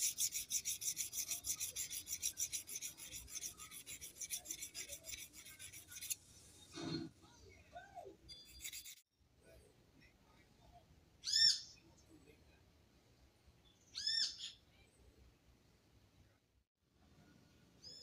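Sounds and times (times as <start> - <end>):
steel rasping on sharpening plate: 0.0 - 6.2, 8.3 - 9.0.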